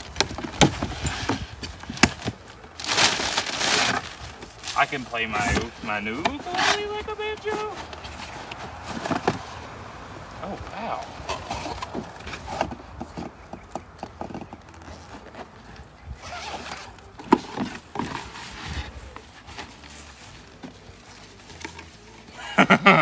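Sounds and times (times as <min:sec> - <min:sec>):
cardboard packaging rustling: 0:00.0 - 0:09.9, 0:14.2 - 0:22.3.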